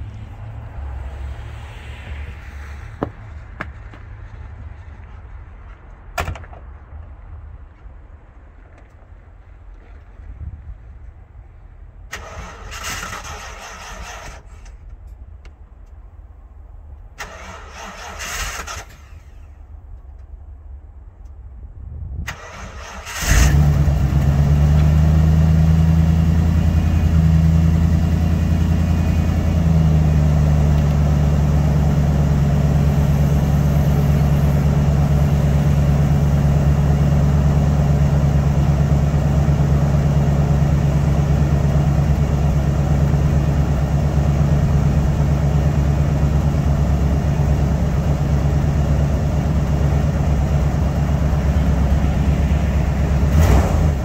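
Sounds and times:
engine cranking and idling: 12.1 - 15.2, 17.1 - 20.2, 22.3 - 54.0.

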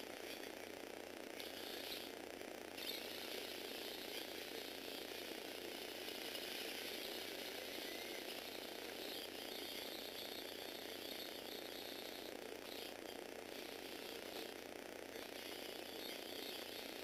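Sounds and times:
toy car motor rattling whir: 1.3 - 17.0.

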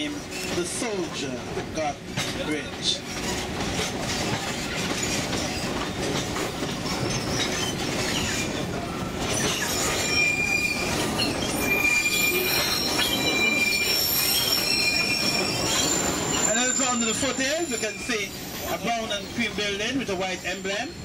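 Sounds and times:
train wheels rumbling on rail: 0.0 - 21.0
high-pitched wheel squeal: 9.4 - 19.4.

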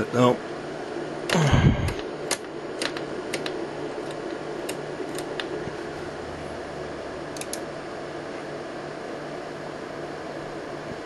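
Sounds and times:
steady equipment hum: 0.0 - 11.0.

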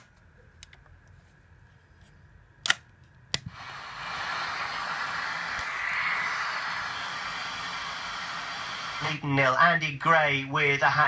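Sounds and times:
radio static hiss: 3.5 - 11.0.

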